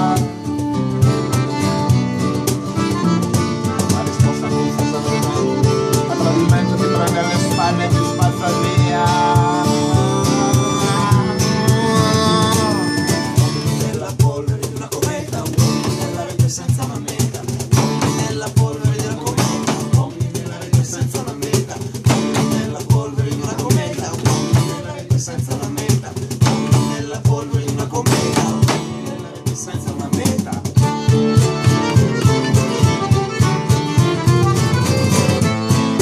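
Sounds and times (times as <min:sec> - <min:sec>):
button accordion playing: 0:00.0 - 0:13.8, 0:30.7 - 0:36.0
acoustic guitars strummed: 0:00.0 - 0:36.0.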